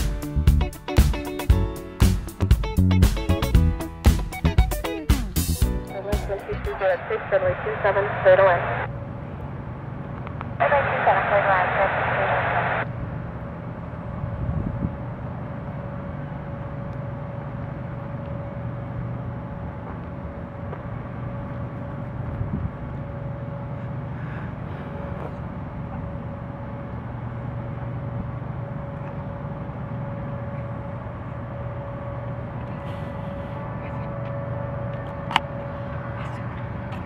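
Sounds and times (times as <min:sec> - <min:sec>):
distant jet engines running: 0:05.9 - 0:37.0.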